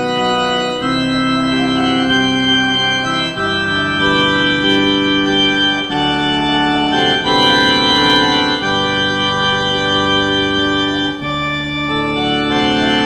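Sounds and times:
church organ playing hymn: 0.0 - 13.0.

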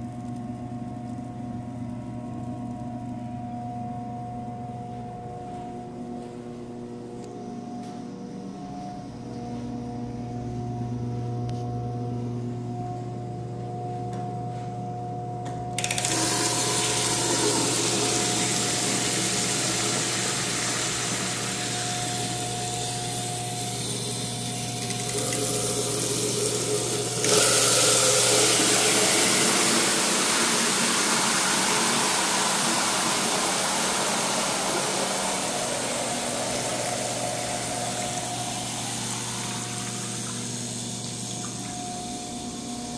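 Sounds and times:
electrical hum: 0.0 - 42.9
water running into sink: 15.8 - 42.9.

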